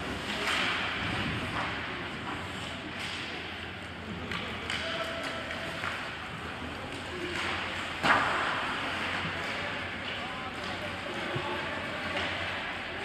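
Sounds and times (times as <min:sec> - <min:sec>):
skating and rink noise: 0:00.0 - 0:13.0.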